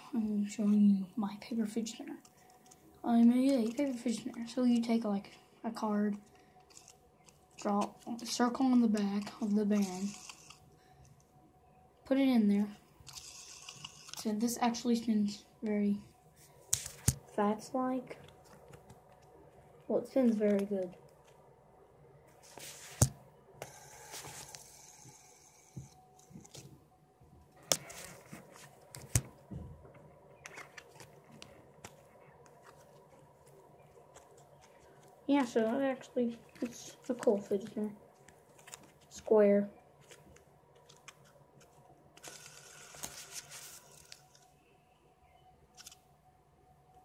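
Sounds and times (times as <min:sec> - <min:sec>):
rustling handling noise: 0:22.3 - 0:44.6.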